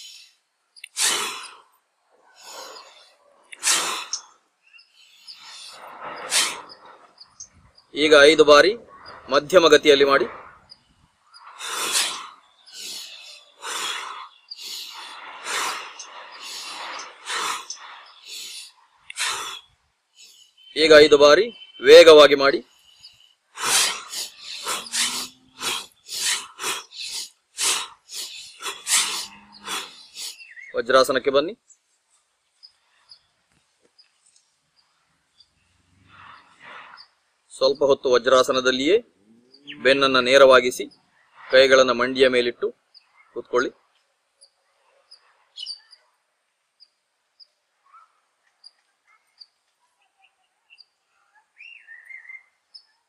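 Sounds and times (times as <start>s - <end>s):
loud breaths out: 0.0s - 1.7s, 2.4s - 4.3s, 5.0s - 6.7s, 11.5s - 20.6s, 22.7s - 30.4s
soft breathing: 0.0s - 7.4s, 10.3s - 20.6s, 22.7s - 30.5s.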